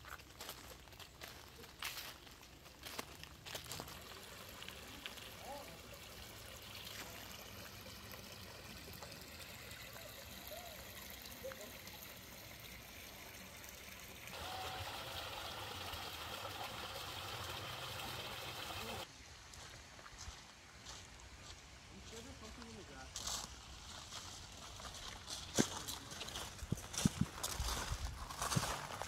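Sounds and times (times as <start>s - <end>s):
water trickling: 0.0s - 19.1s.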